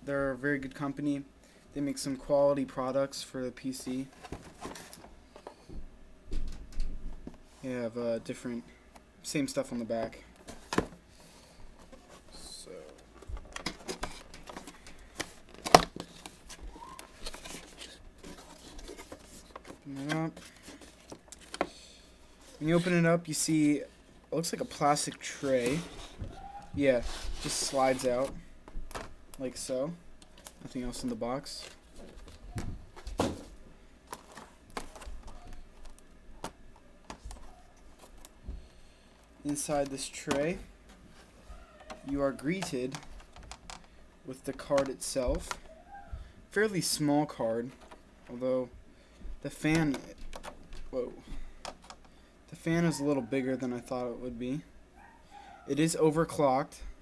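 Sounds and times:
cardboard rubbing and scraping: 0:24.6 - 0:28.4.

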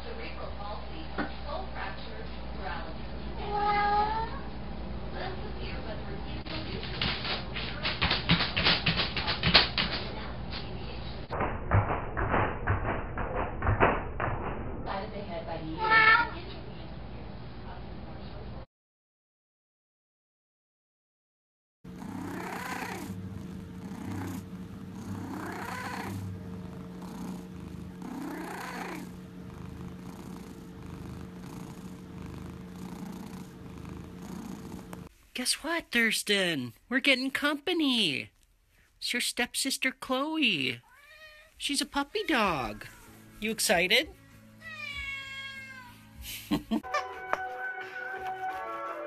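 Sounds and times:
cat purring: 0:21.9 - 0:35.2, 0:41.5 - 0:45.7.

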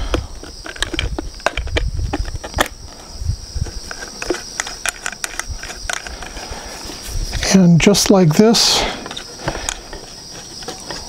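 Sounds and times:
plastic parts clicking and tapping: 0:00.0 - 0:02.8, 0:03.6 - 0:06.5.

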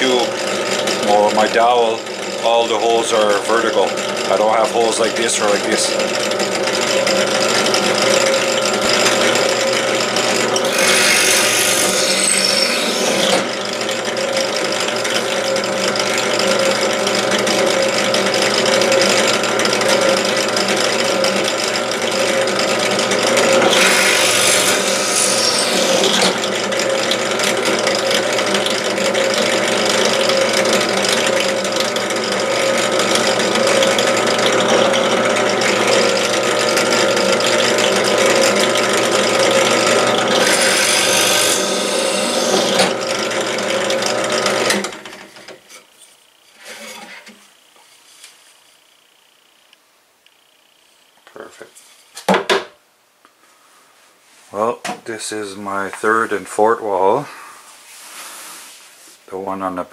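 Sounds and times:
drill bit boring into wood: 0:00.0 - 0:02.6, 0:03.2 - 0:45.1
drill press motor humming: 0:00.0 - 0:45.8.

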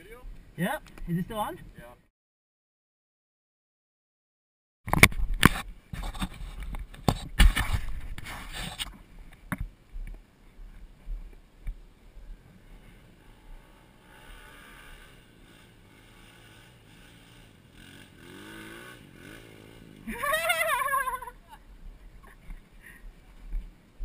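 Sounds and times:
distant dirt bike engine revving: 0:12.3 - 0:21.4.

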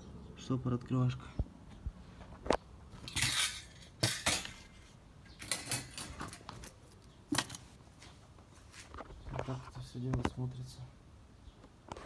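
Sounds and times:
metal rattle: 0:03.0 - 0:07.7.

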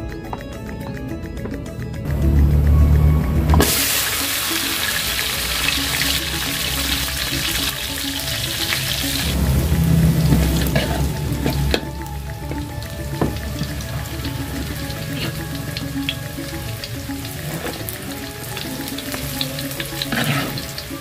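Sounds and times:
vegetables sizzling in hot oil: 0:03.6 - 0:11.8, 0:12.6 - 0:21.0.

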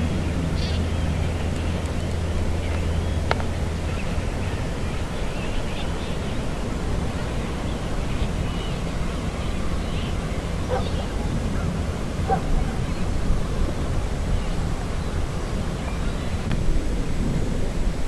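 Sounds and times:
wind noise on microphone: 0:00.0 - 0:18.0
faint bird calls: 0:07.2 - 0:13.1.

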